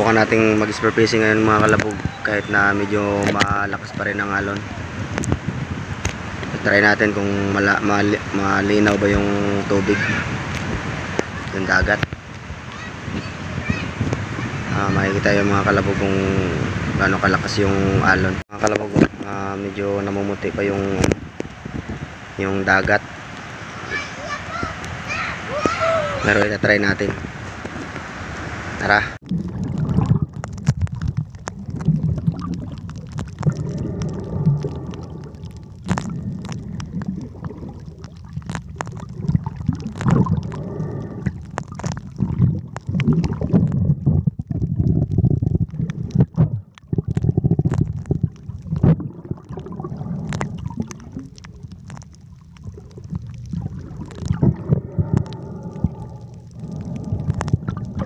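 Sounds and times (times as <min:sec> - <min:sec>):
underwater rumble: 0:00.0 - 0:58.0
underwater clicks and pops: 0:03.2 - 0:03.5, 0:04.4 - 0:06.6, 0:10.5 - 0:12.4, 0:20.9 - 0:21.6, 0:29.2 - 0:58.0.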